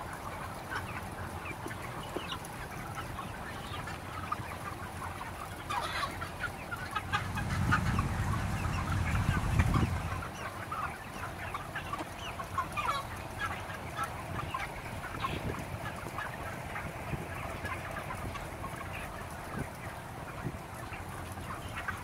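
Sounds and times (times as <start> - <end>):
chickens chirping and clucking: 0.0 - 22.0
low rumble: 7.2 - 10.3.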